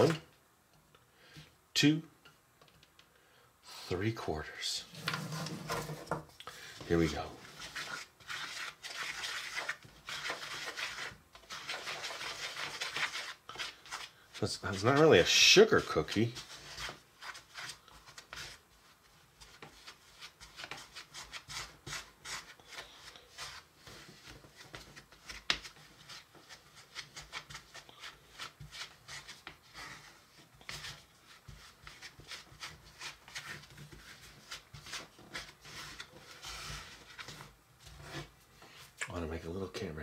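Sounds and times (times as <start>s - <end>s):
wooden spoon scraping bowl: 4.8s - 18.7s, 25.7s - 38.9s.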